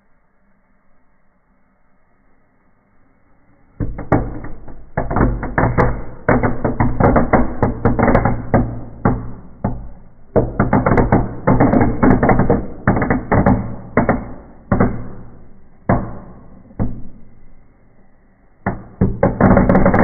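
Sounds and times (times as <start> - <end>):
firecrackers banging and crackling: 3.8 - 17.5, 18.6 - 20.0.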